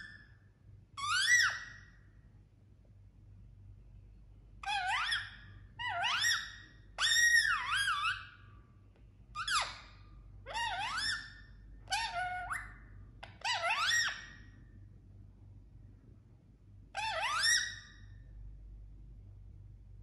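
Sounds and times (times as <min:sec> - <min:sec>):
parakeet whistling calls: 0:01.0 - 0:02.0, 0:04.6 - 0:08.4, 0:09.4 - 0:09.9, 0:10.5 - 0:14.5, 0:17.0 - 0:18.0.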